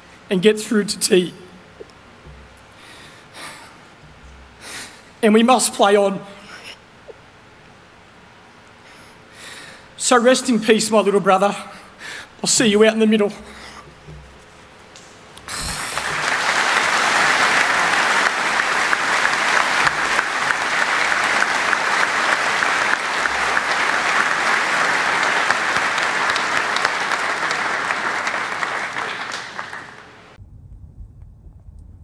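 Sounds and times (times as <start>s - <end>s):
crowd applauding: 15.4s - 30.4s.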